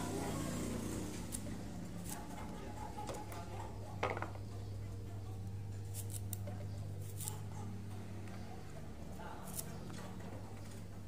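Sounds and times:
knife clicking and scraping: 5.8 - 6.4, 7.0 - 7.5.

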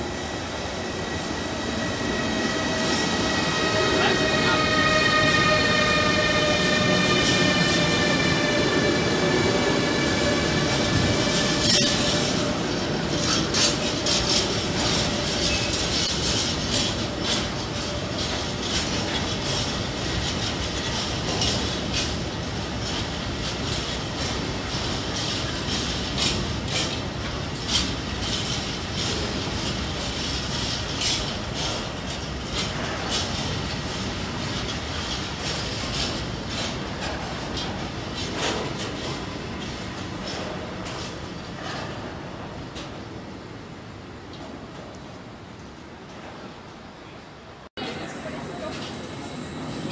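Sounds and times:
locomotive whine: 0.0 - 23.0, 47.8 - 49.9
wheel and rail rumble: 0.0 - 49.9
wheels clacking over rail joints: 2.6 - 43.1.

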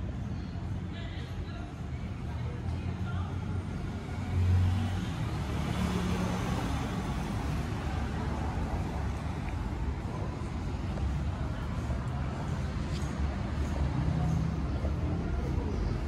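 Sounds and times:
low traffic rumble: 0.0 - 16.0
vehicle passing: 3.9 - 16.0.

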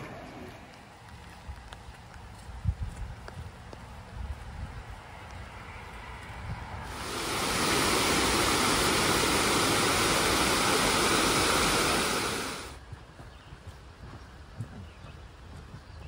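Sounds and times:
waterfall rushing over rocks: 6.9 - 12.8.

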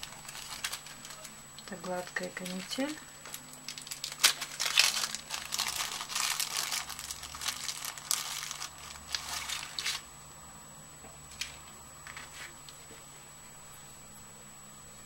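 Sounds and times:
plastic packet crinkling: 0.0 - 10.0.

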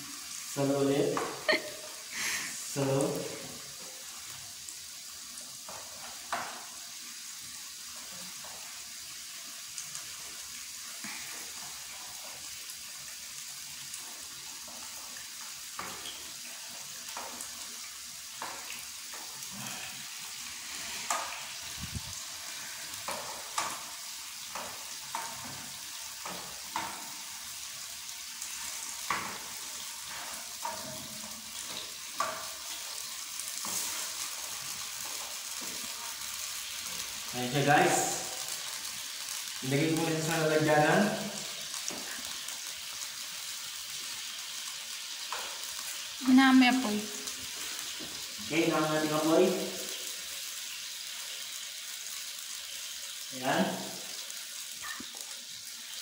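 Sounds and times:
beef sizzling in a frying pan: 0.0 - 56.0
spatula scraping a pan: 28.4 - 36.2.

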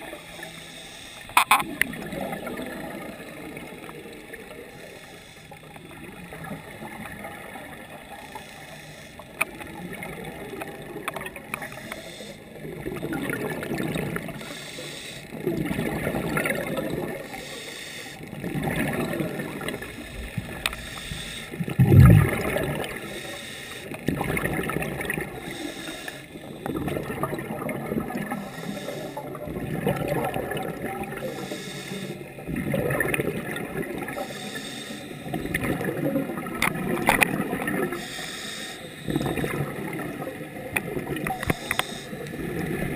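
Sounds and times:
exhaled bubbles underwater: 1.4 - 5.0, 5.6 - 8.4, 9.2 - 14.6, 15.3 - 17.5, 18.2 - 42.9
underwater murmur: 18.2 - 42.9.

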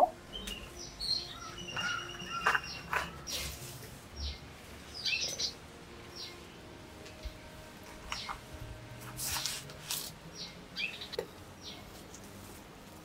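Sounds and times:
small birds chirping: 0.0 - 6.7, 8.1 - 8.4, 10.3 - 12.0.

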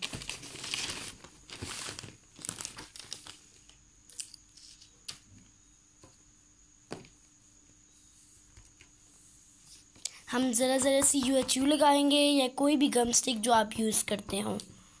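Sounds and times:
paper and cardboard rustling: 0.0 - 3.8.

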